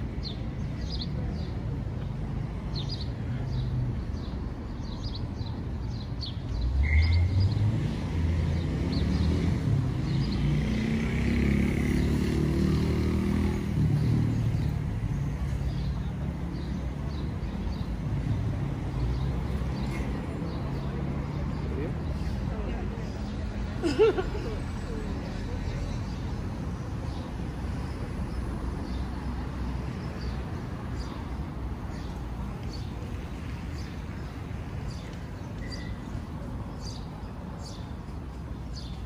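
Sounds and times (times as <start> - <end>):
traffic hum: 0.0 - 39.0
vehicle driving past: 6.9 - 14.8
small birds chirping: 24.9 - 39.0.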